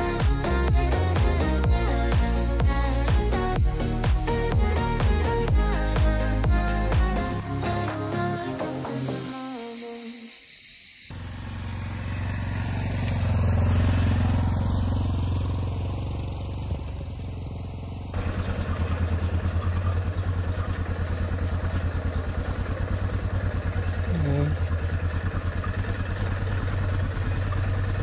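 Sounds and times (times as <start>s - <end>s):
motorcycle engine running: 0.0s - 9.1s, 11.1s - 28.0s
pulsing engine beat: 0.0s - 9.3s, 11.1s - 19.5s
music: 0.0s - 10.0s.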